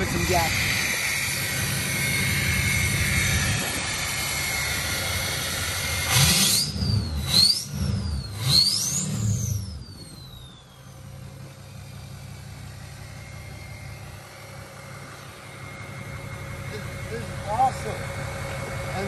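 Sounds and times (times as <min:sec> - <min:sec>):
diesel truck engine idling and revving: 0:00.0 - 0:19.0
turbo whistle: 0:06.2 - 0:10.6.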